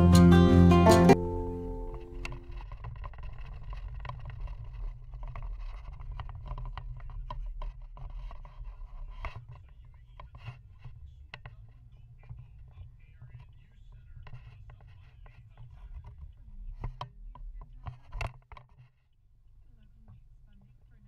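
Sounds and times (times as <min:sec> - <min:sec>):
music: 0:00.0 - 0:02.5
small clicks and rattles: 0:02.0 - 0:19.1.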